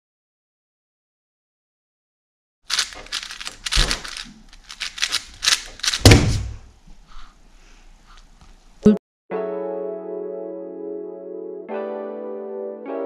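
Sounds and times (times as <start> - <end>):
speedcube clicking turns: 2.7 - 6.1
cube thud on mat: 5.8 - 6.7.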